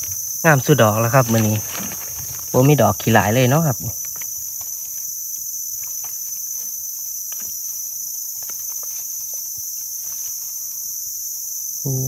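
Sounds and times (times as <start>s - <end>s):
insects buzzing: 0.0s - 12.0s
dry leaves crackling and rustling: 0.6s - 3.4s.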